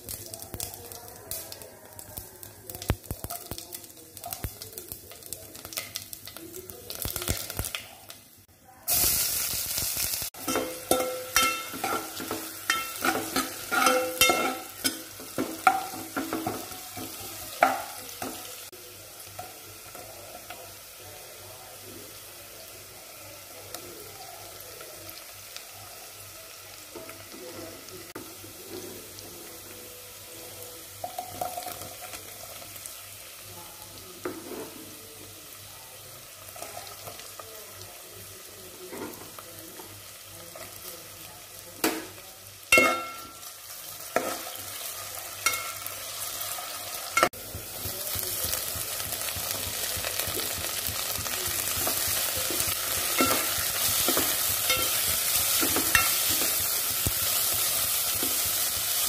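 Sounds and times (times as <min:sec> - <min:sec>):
oil crackling: 0:00.0 - 0:11.8, 0:47.1 - 0:59.0
food sizzling in hot oil: 0:00.0 - 0:59.0.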